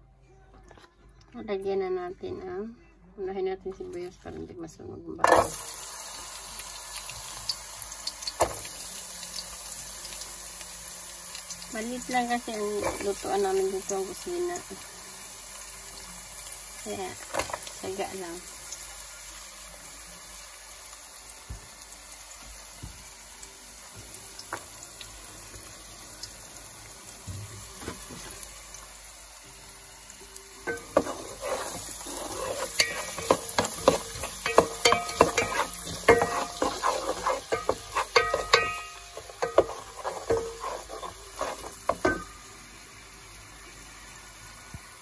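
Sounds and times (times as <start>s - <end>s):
onions sizzling in hot oil: 5.3s - 45.0s
wooden spoon scraping a pot: 30.7s - 42.3s.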